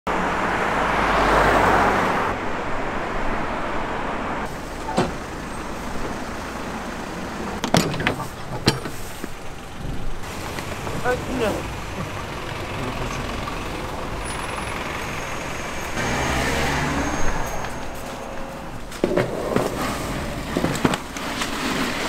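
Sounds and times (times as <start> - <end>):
road traffic noise: 0.1 - 22.0
truck cargo door clunking: 4.6 - 6.3, 7.2 - 12.8.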